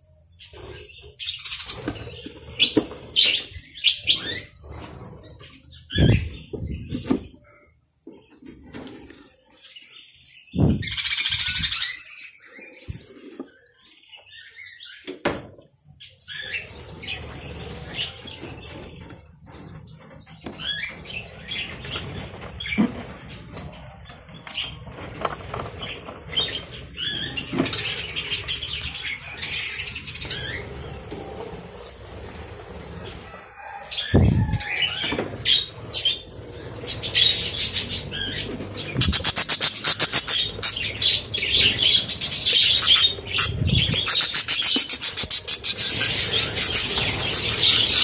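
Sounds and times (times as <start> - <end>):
budgerigars chirping and chattering: 0.3 - 31.0, 33.9 - 48.0.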